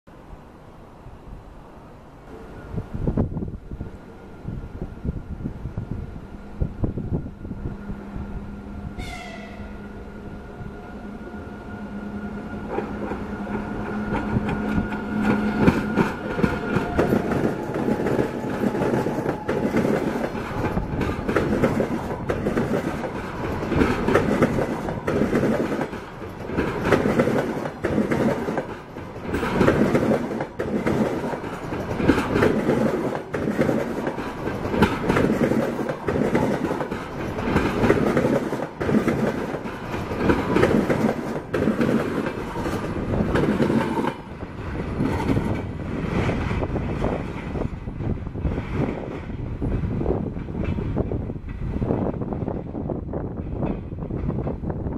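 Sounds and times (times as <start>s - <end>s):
train wheels clattering over rail joints: 12.7s - 54.8s.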